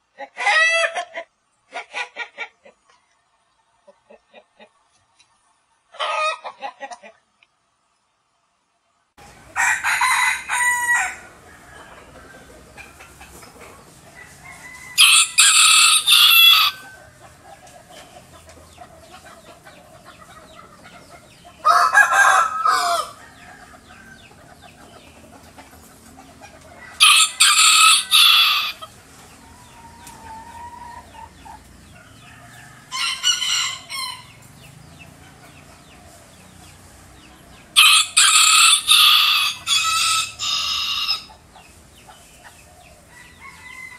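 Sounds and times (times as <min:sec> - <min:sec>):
rooster crowing: 0:09.4 - 0:12.8, 0:14.1 - 0:17.3, 0:21.6 - 0:24.4, 0:26.7 - 0:28.9, 0:31.9 - 0:34.6, 0:37.8 - 0:41.3, 0:43.1 - 0:43.9.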